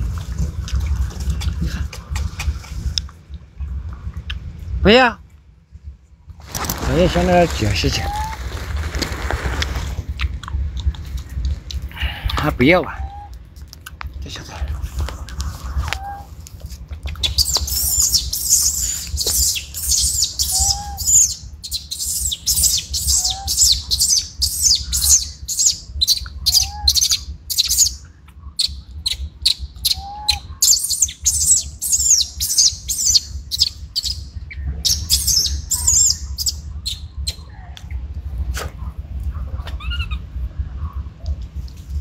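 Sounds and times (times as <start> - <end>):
steady low rumble: 0.0 - 42.0
small birds twittering: 6.8 - 9.6, 15.3 - 38.1.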